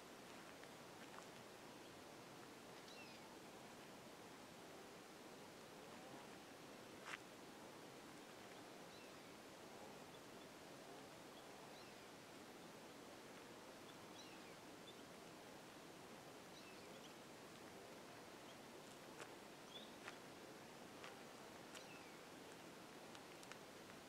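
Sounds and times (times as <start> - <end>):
faint background hiss: 0.0 - 24.0
small birds chirping: 11.3 - 12.8, 13.7 - 15.2, 16.5 - 17.3, 18.3 - 20.3, 21.7 - 23.6.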